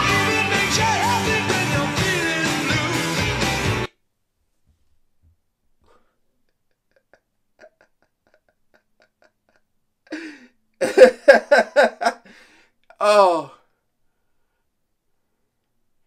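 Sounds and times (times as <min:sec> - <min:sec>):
man laughing: 0:06.6 - 0:13.5.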